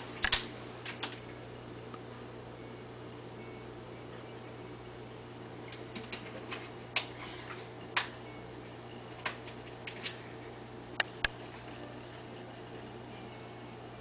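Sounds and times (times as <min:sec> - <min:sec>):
aquarium equipment humming: 0:00.0 - 0:14.0
sharp clicks: 0:00.2 - 0:01.2.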